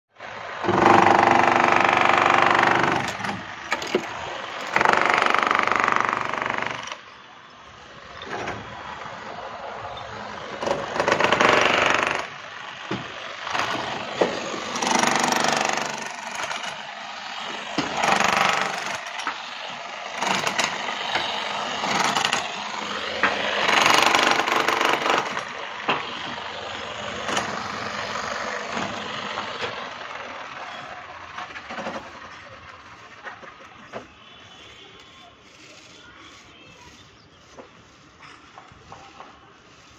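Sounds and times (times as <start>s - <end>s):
demolition hammer chiselling concrete: 0.6s - 7.0s, 10.2s - 29.9s.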